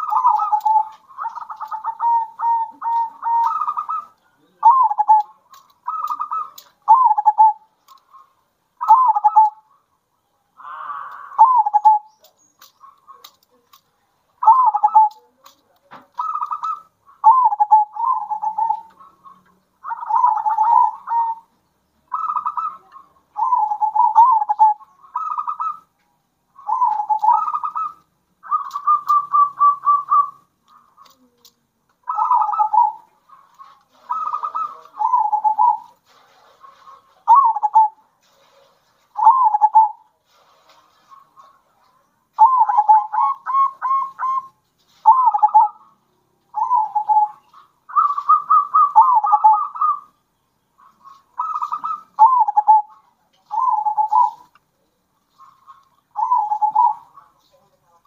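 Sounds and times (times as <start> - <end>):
doves cooing: 0.0 - 13.8, 14.4 - 25.9, 26.5 - 50.2, 50.8 - 54.6, 55.2 - 58.0.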